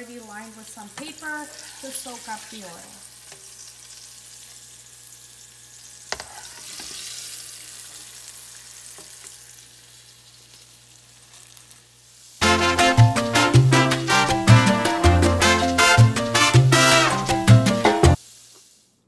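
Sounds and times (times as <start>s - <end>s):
calamari sizzling in oil: 0.0s - 14.2s, 14.8s - 19.0s
music: 12.4s - 18.2s.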